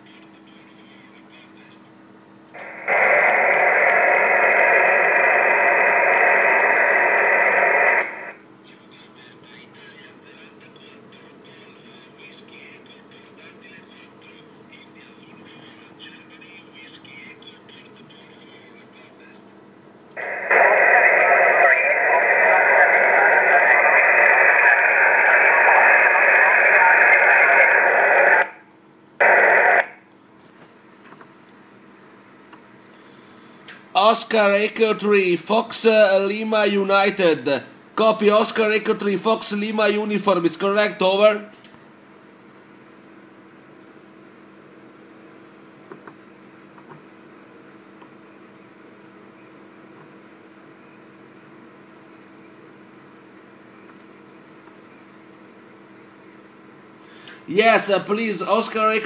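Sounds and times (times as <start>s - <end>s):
radio receiver hiss: 2.5s - 8.4s, 20.2s - 28.6s, 29.2s - 30.0s.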